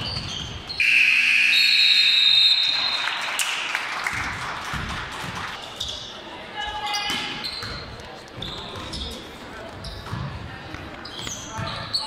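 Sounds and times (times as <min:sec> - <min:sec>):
scoreboard buzzer: 0:00.8 - 0:02.0
spectators cheering and clapping: 0:01.5 - 0:05.6.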